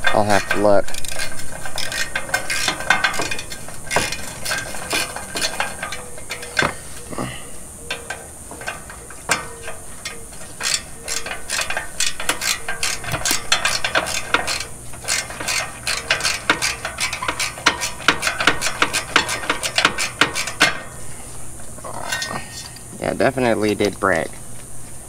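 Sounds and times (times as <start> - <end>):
ratchet wrench clicking: 0.0 - 6.8, 7.9 - 20.8.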